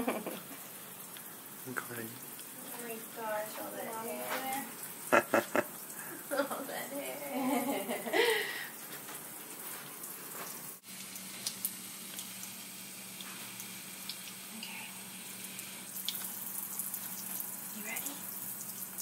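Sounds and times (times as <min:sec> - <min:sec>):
faucet running into a sink: 0:10.0 - 0:19.0.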